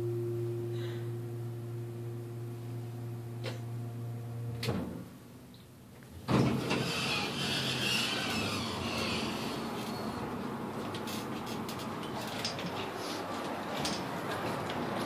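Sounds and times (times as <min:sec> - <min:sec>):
elevator humming: 0:00.0 - 0:05.3, 0:06.1 - 0:12.8
elevator doors clunking open: 0:06.2 - 0:10.4.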